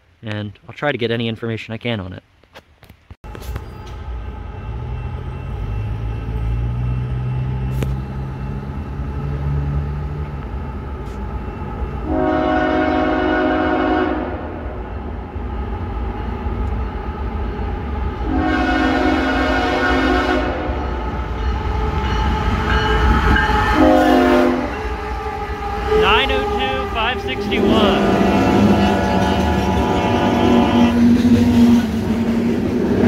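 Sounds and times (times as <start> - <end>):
diesel locomotive engine droning: 3.2 - 33.0
train air horn blasts: 12.0 - 14.7, 18.2 - 20.8, 23.1 - 32.0.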